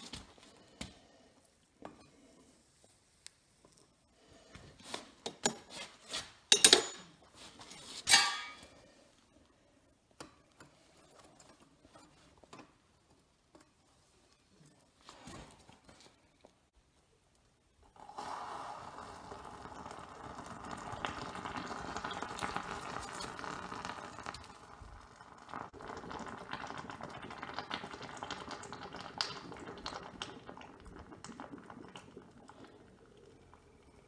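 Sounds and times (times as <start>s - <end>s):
molten metal sizzling and crackling: 18.2s - 30.4s.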